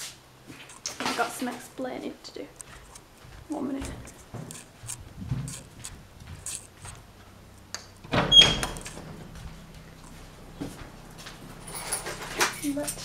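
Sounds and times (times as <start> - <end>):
door bumping open: 8.0 - 9.3
door squeak: 8.1 - 9.0.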